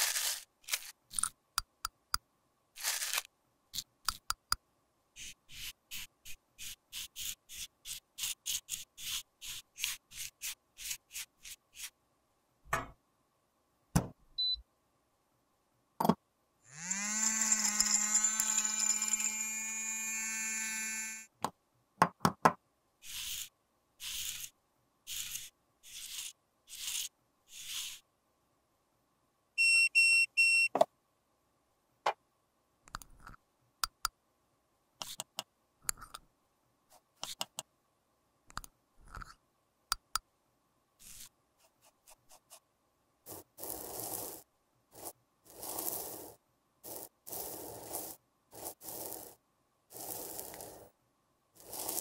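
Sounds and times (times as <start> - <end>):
metal spatula scraping powder: 0.0 - 1.3, 2.8 - 3.3, 5.2 - 12.0, 23.0 - 28.1, 41.0 - 42.6, 43.3 - 51.0, 51.6 - 52.0
appliance beeps: 14.4 - 14.6, 29.6 - 30.9
small electric motor whine: 16.7 - 21.3.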